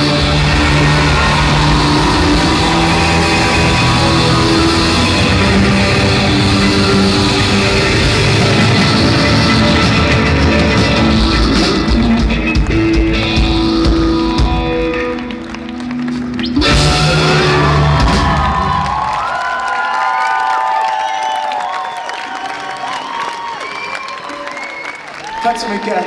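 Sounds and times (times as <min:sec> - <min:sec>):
live rock band playing: 0:00.0 - 0:19.2
crowd cheering and whistling: 0:00.0 - 0:26.0.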